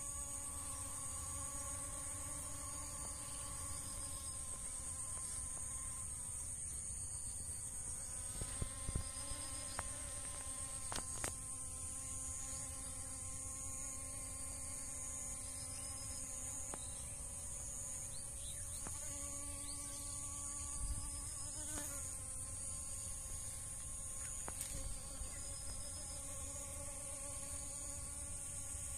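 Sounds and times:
bees buzzing: 0:00.0 - 0:06.4, 0:07.6 - 0:28.9.

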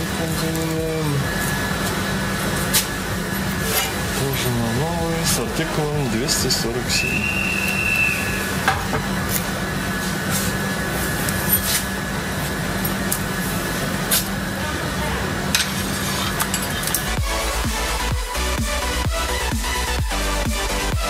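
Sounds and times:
steady hum and hiss: 0:00.0 - 0:21.0
electronic music: 0:00.7 - 0:07.0, 0:16.0 - 0:21.0.

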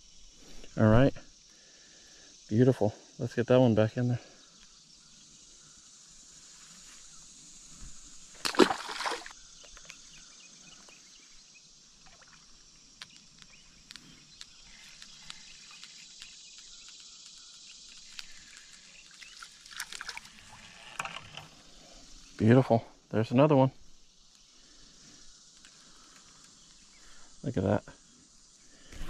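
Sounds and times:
high-pitched insect drone: 0:00.0 - 0:29.0
fish splashing into pond: 0:08.3 - 0:09.4, 0:19.1 - 0:20.5
small water splashes: 0:08.4 - 0:09.4, 0:12.0 - 0:12.6, 0:19.1 - 0:20.6
faint clicks: 0:12.9 - 0:20.1.

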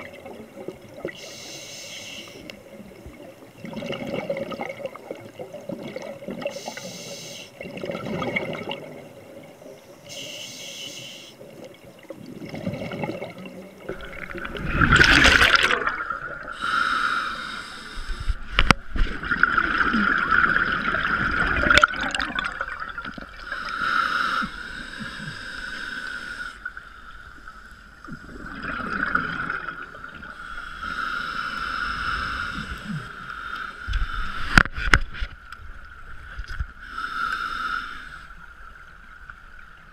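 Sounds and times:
gurgling exhaled bubbles: 0:03.6 - 0:06.5, 0:07.6 - 0:09.2, 0:12.1 - 0:16.6, 0:18.6 - 0:23.5, 0:28.1 - 0:30.4
diver breathing through regulator: 0:06.5 - 0:07.6, 0:16.4 - 0:18.6, 0:23.4 - 0:26.7, 0:30.4 - 0:34.6, 0:36.8 - 0:38.4.

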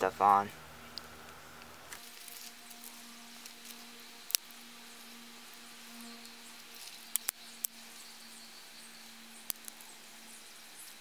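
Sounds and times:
dry twigs snapping: 0:00.9 - 0:07.8, 0:09.4 - 0:10.0.

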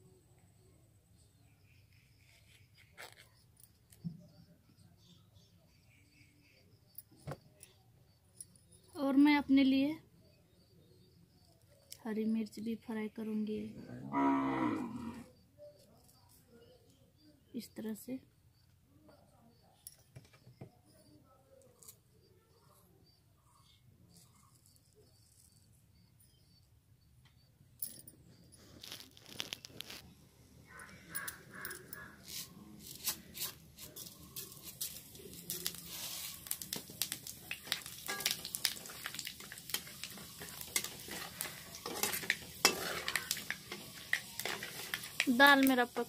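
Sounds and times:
chillies frying in hot oil: 0:33.4 - 0:46.0.

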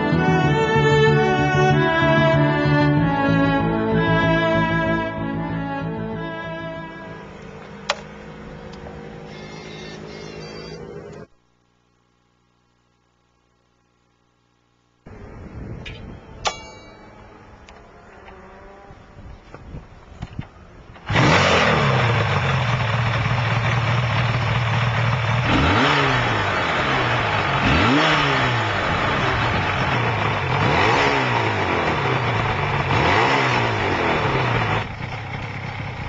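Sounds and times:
two-stroke engine idling and revving: 0:21.0 - 0:36.0.

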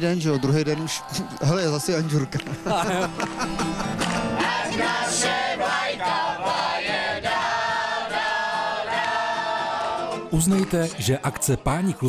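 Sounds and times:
mixed choir singing: 0:00.0 - 0:03.1, 0:04.0 - 0:11.2
acoustic guitar: 0:02.4 - 0:11.0.

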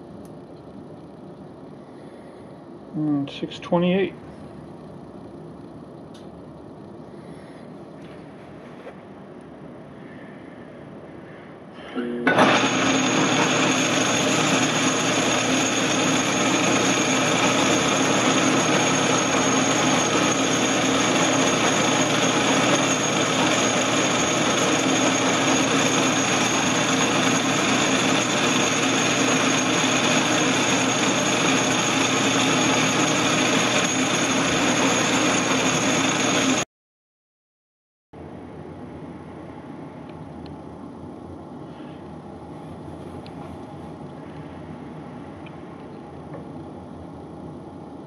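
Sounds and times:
metal lathe cutting metal bar: 0:12.3 - 0:36.6.

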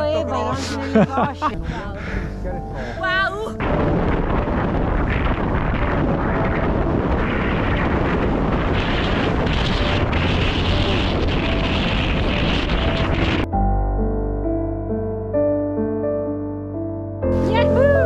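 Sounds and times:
wind buffeting microphone: 0:00.0 - 0:13.5.

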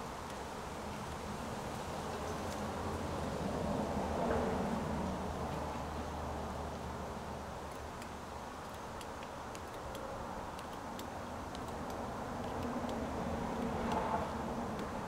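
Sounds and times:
faint light ticks: 0:07.6 - 0:14.1.

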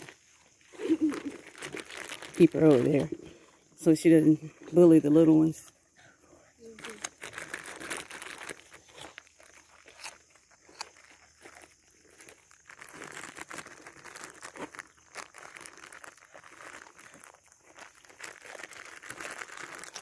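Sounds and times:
plastic bag crinkling: 0:00.0 - 0:03.2, 0:06.6 - 0:20.0.

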